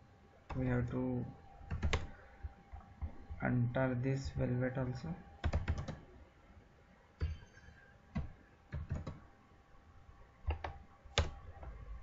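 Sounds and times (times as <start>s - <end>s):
computer keyboard keystrokes: 1.7s - 2.1s, 5.4s - 6.0s, 8.1s - 9.2s, 10.5s - 11.8s.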